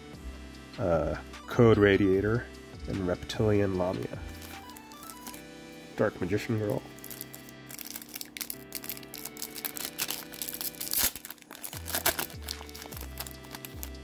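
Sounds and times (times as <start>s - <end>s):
background music: 0.0s - 14.0s
foil wrapper crinkling and tearing: 4.3s - 5.5s, 6.6s - 14.0s.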